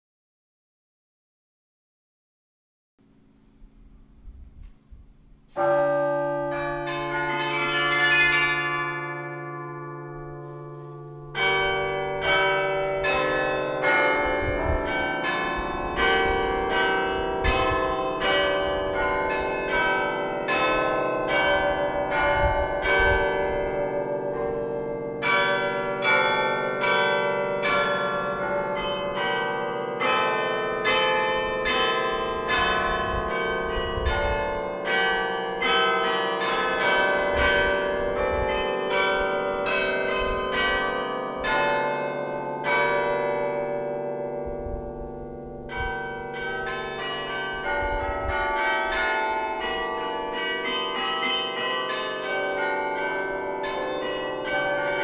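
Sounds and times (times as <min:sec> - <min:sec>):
carillon bells playing a tune: 0:05.6 - 0:10.7, 0:24.8 - 0:43.4, 0:45.7 - 0:55.0.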